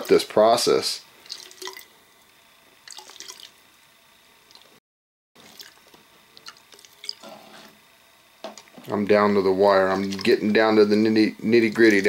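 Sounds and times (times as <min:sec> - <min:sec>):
water trickling into plastic bottle: 0:01.3 - 0:01.9, 0:05.4 - 0:07.3.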